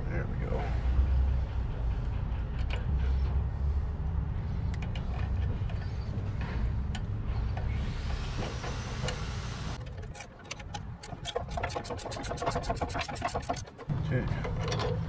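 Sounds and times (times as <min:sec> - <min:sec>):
low machine hum: 0:00.0 - 0:09.8.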